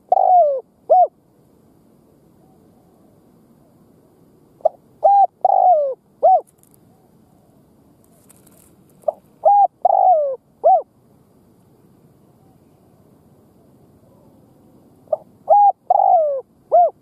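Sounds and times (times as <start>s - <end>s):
dove cooing: 0.0s - 1.2s, 4.6s - 7.6s, 8.3s - 10.9s, 15.1s - 17.0s.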